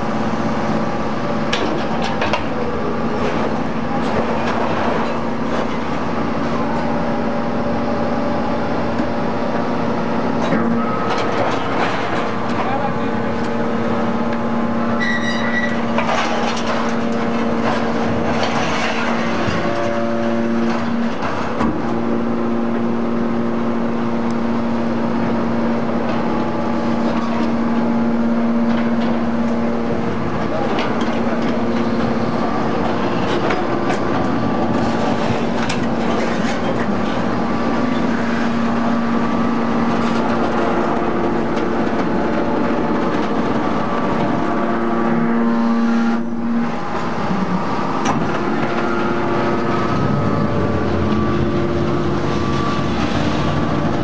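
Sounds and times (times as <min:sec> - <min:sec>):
machine hum with held tones: 0:37.0 - 0:54.0.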